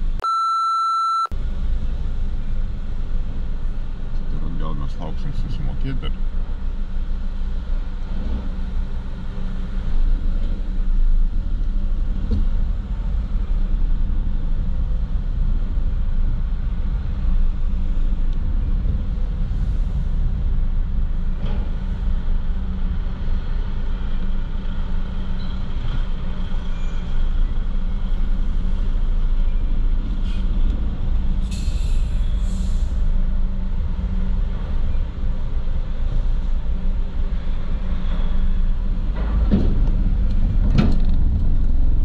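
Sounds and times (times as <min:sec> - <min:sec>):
engines droning: 0:01.4 - 0:42.0.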